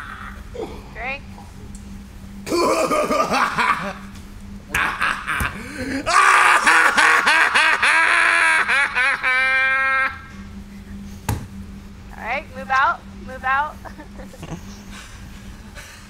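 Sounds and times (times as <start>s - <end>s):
man laughing loudly: 2.5s - 4.1s, 4.7s - 10.3s, 13.8s - 16.0s.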